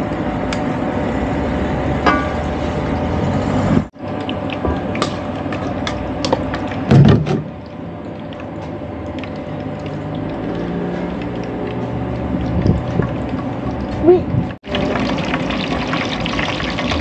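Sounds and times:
frying sizzle: 4.0 - 13.9, 14.6 - 17.0.

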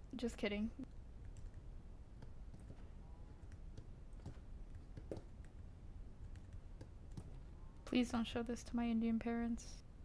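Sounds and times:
low steady hum: 0.0 - 10.0
computer mouse clicks: 2.2 - 5.6, 6.2 - 7.4.

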